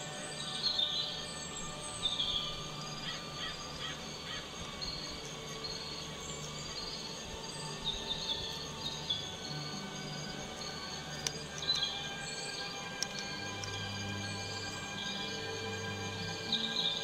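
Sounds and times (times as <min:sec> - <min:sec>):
steady drone of held tones: 0:00.0 - 0:17.0
birds chirping: 0:07.8 - 0:15.4.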